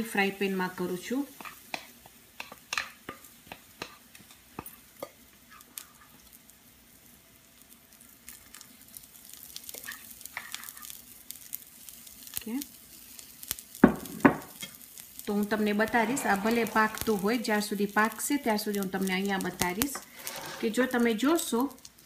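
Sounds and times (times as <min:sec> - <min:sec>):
batter sizzling in a frying pan: 0:00.0 - 0:22.0
crackles and pops: 0:07.6 - 0:20.0, 0:20.9 - 0:22.0.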